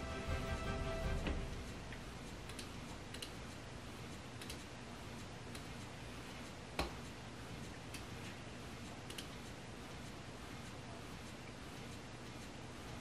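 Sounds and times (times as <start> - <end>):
small clicks: 2.5 - 8.1, 8.8 - 9.5.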